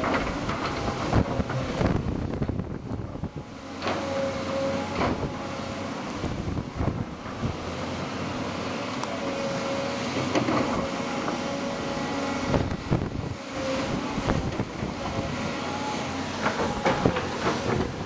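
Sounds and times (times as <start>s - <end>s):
excavator engine drone: 0.0s - 18.0s.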